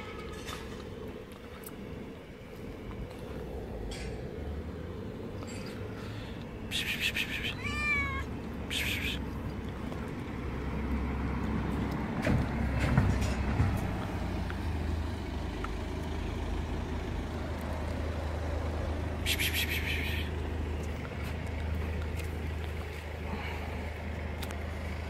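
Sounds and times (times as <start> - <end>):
cat meowing: 7.0 - 9.2.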